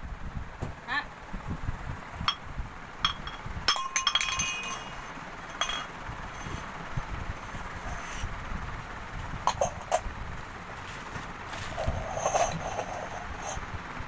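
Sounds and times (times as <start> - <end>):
metal tumbler clanking on stone floor: 3.0 - 6.6, 9.5 - 10.0, 11.6 - 13.6.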